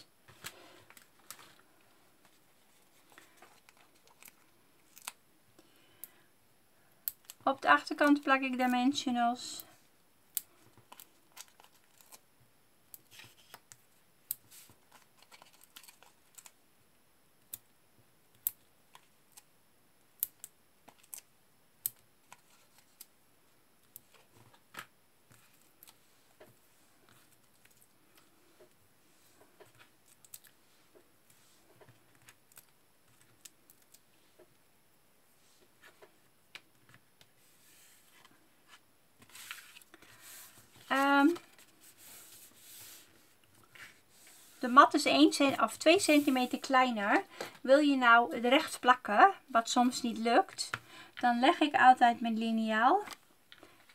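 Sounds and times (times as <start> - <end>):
backing sheet rustling: 37.3 - 47.5.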